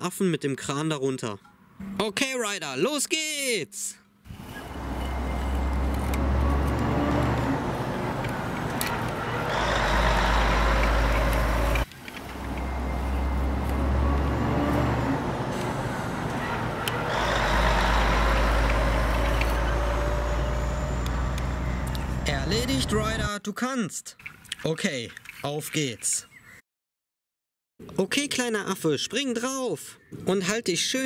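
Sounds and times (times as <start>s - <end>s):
digger engine running: 4.6s - 23.3s.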